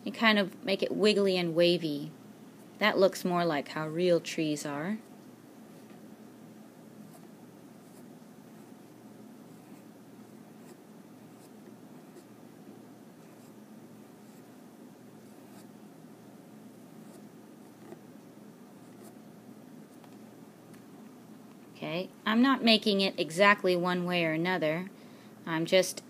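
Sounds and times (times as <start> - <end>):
low background hum: 0.0 - 26.0
pencil scratching on paper: 7.0 - 12.3, 13.2 - 13.6, 14.2 - 14.5, 15.2 - 15.8, 17.0 - 18.0, 18.8 - 19.2.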